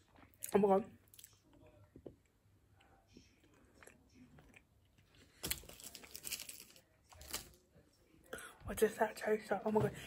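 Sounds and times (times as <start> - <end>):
person chewing chocolate: 2.7 - 6.2.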